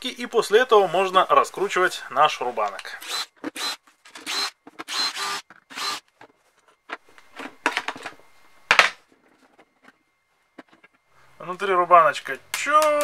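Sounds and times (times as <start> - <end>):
cordless screwdriver whirring: 3.0 - 6.0.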